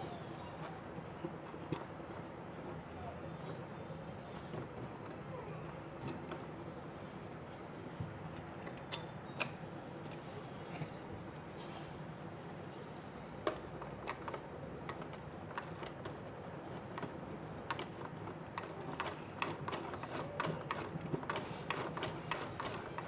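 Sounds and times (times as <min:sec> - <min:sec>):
sewing machine mechanism clicking: 0:16.8 - 0:23.0.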